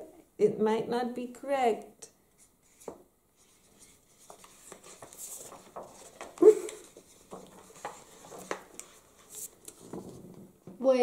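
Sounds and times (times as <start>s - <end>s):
marker pen scratching on paper: 2.4s - 10.2s
person laughing: 6.4s - 6.9s.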